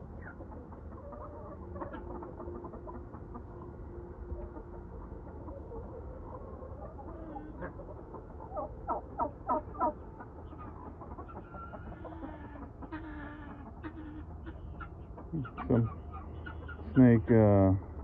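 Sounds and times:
chickens clucking: 0.0s - 18.0s
sharp chicken calls: 5.5s - 17.1s.

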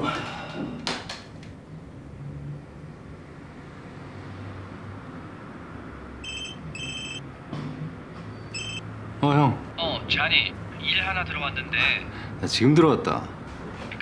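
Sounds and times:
mobile phone ringtone: 6.2s - 7.3s, 8.6s - 8.8s
low background hum: 8.4s - 14.0s.

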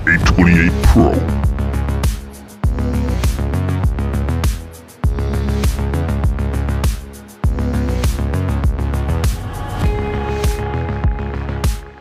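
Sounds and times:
electronic music with steady beat: 0.0s - 8.8s.

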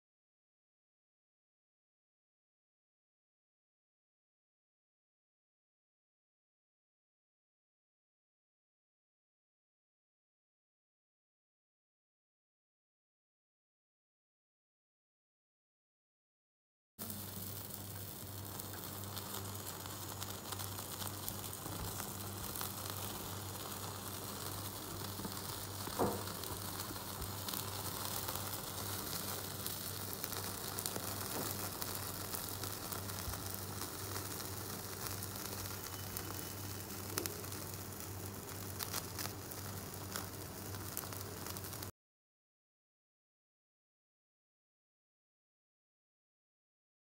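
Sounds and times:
skewers sizzling and crackling: 17.0s - 41.9s
steady hiss: 17.0s - 41.9s
loud pop: 25.8s - 26.7s.

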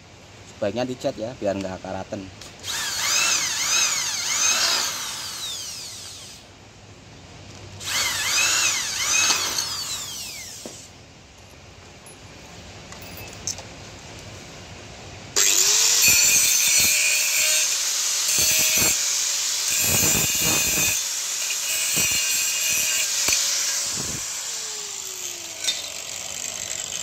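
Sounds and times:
angle grinder sanding metal: 15.4s - 27.0s.

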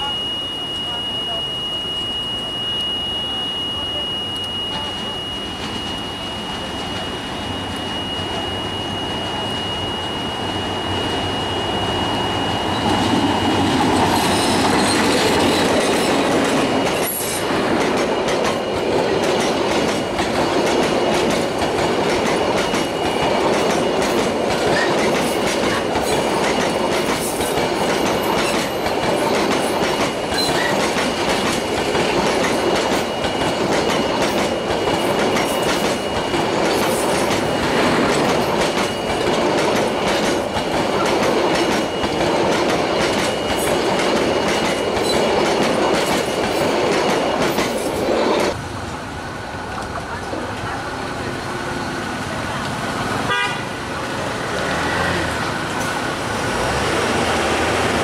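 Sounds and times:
diesel locomotive engine: 0.0s - 58.0s
train wheels clickety-clack: 12.8s - 48.6s.

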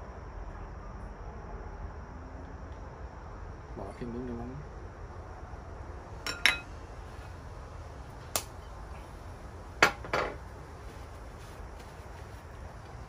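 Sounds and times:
bottle knocking on glass table: 6.3s - 6.6s
spoon and bowl clinking on glass: 6.3s - 6.7s.

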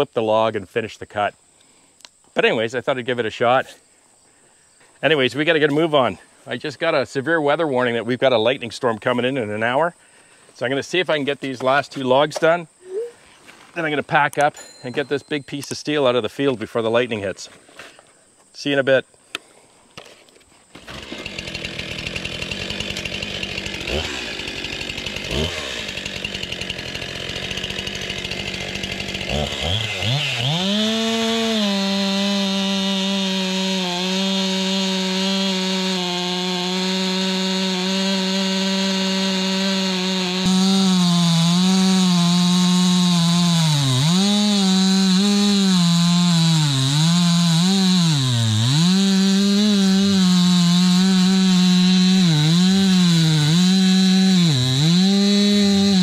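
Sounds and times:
chainsaw cutting log: 20.0s - 56.0s.

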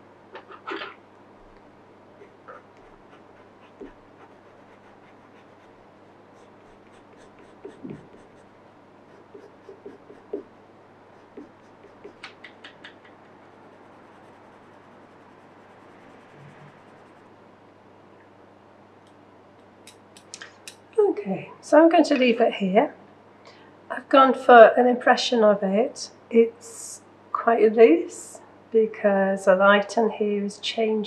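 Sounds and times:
low steady hum: 0.0s - 31.0s
pencil scratching on paper: 2.2s - 8.5s, 9.1s - 10.5s, 11.1s - 17.3s.

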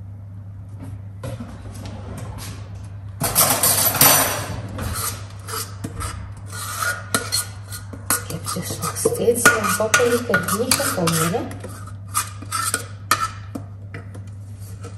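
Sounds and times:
metal scraping: 3.2s - 13.4s.

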